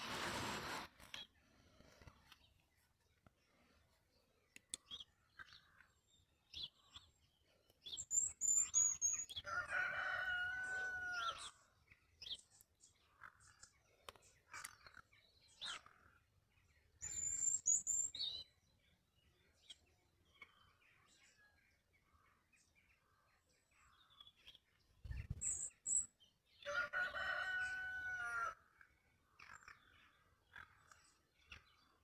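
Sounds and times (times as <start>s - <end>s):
small birds chirping: 1.0s - 9.6s, 10.6s - 26.5s, 28.8s - 32.0s
rooster crowing: 9.4s - 11.5s, 26.7s - 28.6s.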